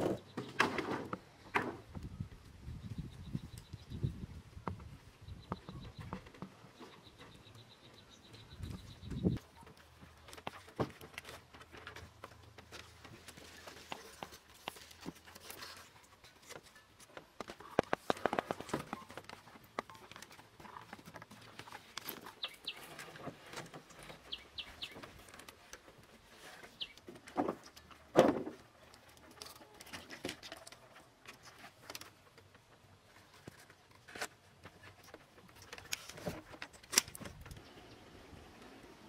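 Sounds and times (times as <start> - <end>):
birds chirping: 1.4 - 10.7, 17.5 - 28.0
wooden poles knocking and creaking: 8.3 - 37.6.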